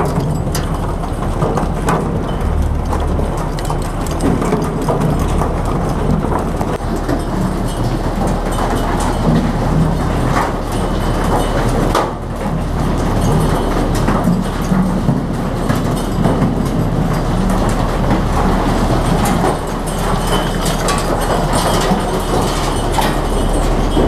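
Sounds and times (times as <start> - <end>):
diesel boat engine droning: 0.0 - 14.0
clattering knocks on steel chutes: 0.0 - 24.0.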